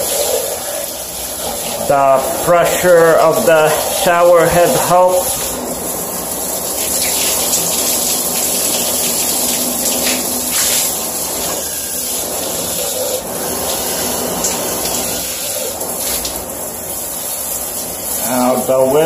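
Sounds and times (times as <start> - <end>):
shower water splashing on plastic: 0.0 - 19.0.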